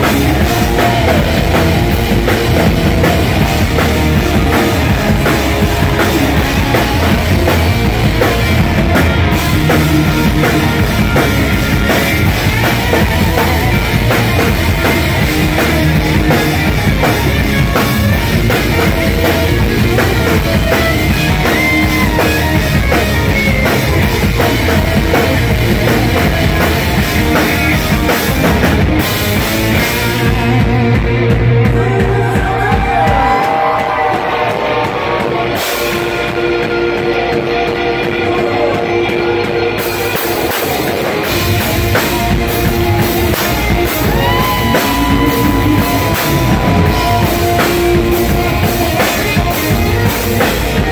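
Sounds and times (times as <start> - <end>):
live rock band playing: 0.0 - 50.9.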